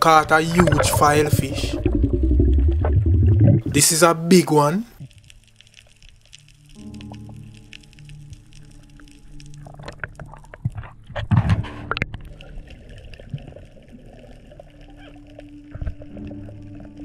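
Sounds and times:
water sloshing and bubbling: 0.0 - 3.9, 4.9 - 17.0
underwater water noise: 0.0 - 17.0
soft background music: 3.6 - 17.0.

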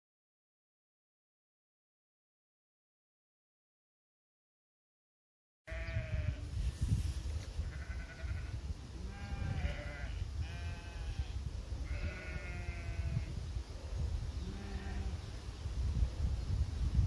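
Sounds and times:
sheep bleating: 5.7 - 6.4, 7.7 - 13.3, 14.4 - 15.2.

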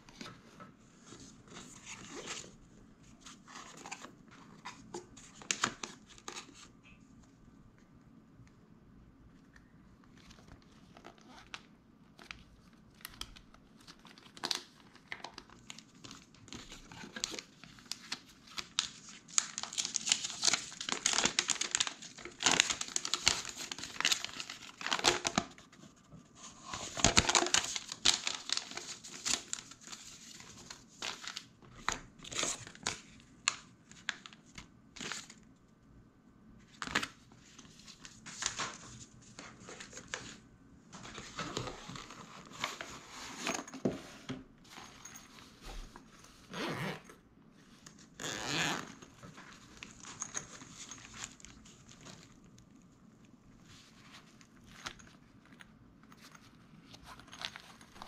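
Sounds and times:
paper rustling and crinkling: 10.0 - 35.4, 36.7 - 46.6, 47.6 - 52.5, 53.6 - 58.0.

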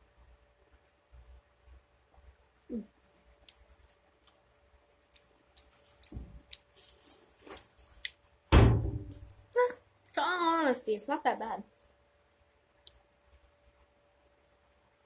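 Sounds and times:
wet chewing and mouth smacks: 5.1 - 8.2.

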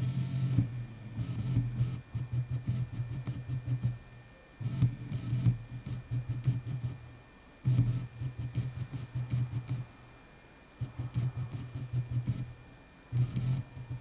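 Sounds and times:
faint steady high tone: 4.2 - 4.6.

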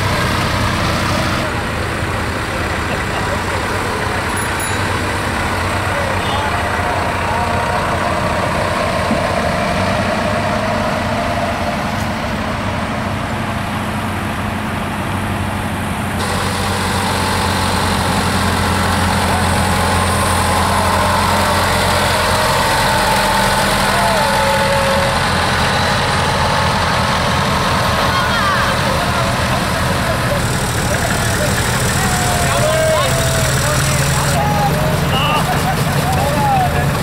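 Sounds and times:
tractor diesel engines running: 0.0 - 37.0
faint voices: 1.4 - 11.0, 18.9 - 37.0.

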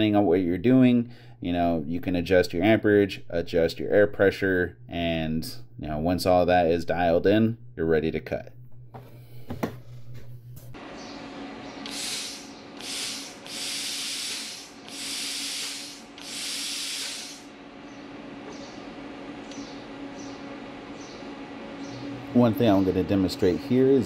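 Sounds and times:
steady low hum: 0.0 - 24.0
compressed air hissing from torch: 11.8 - 17.6.

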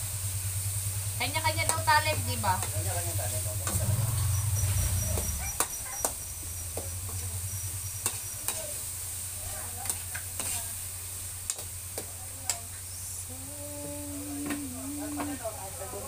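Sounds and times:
meat and vegetables sizzling in pan: 0.0 - 16.0
spatula scraping pan: 9.8 - 10.8
steady low hum: 12.7 - 16.0.

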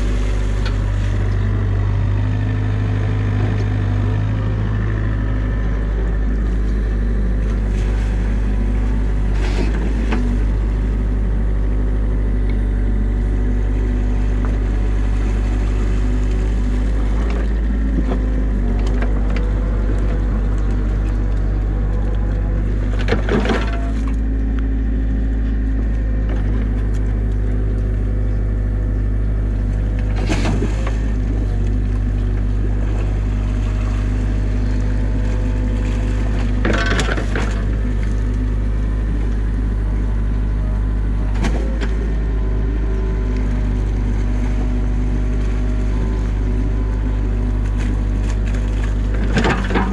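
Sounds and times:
diesel engine running: 0.0 - 49.9
hydraulics whining: 0.0 - 49.9
excavator bucket clunks: 22.9 - 24.2, 30.0 - 31.7, 36.5 - 37.8, 49.1 - 49.9.

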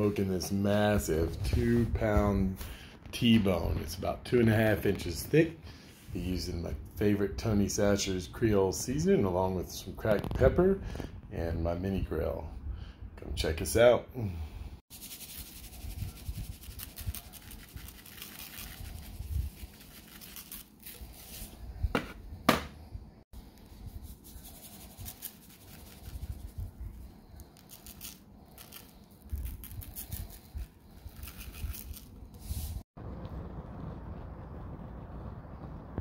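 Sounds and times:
rustling and scraping on cutting board: 15.2 - 22.8, 27.6 - 32.8
low rumble: 29.2 - 36.0.

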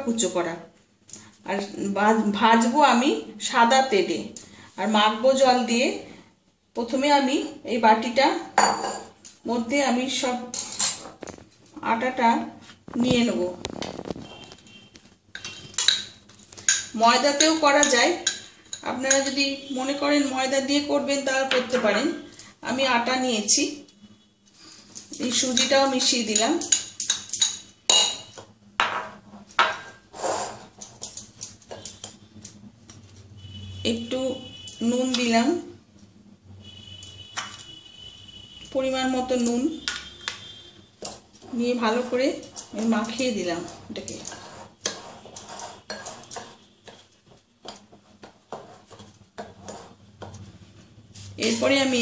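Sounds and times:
glass bowls clinking: 8.6 - 9.4, 15.4 - 19.3, 24.8 - 33.5, 39.8 - 46.8
whisk scraping in glass bowl: 41.4 - 47.1, 48.5 - 50.3.

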